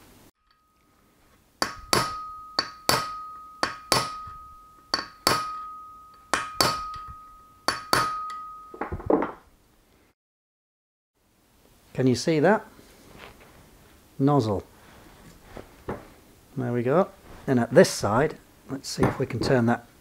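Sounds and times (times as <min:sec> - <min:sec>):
hammer tapping metal: 0:01.6 - 0:08.9.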